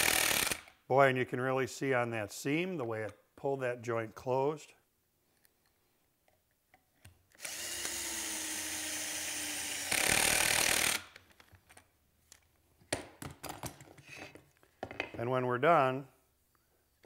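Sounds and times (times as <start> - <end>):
cordless drill driving a screw: 0.0 - 0.7, 7.4 - 11.2.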